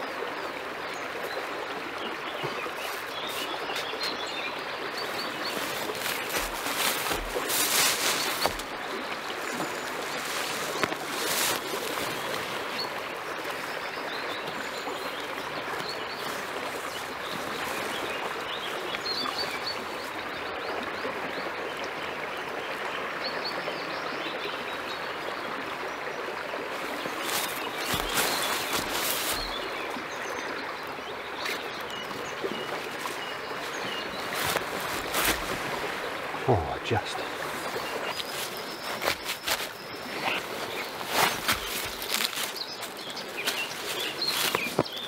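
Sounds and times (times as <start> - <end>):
river water rushing: 0.0 - 22.2, 24.6 - 45.0
rustling: 5.5 - 8.7, 10.0 - 12.6, 27.2 - 29.6, 34.1 - 36.0, 37.4 - 44.9.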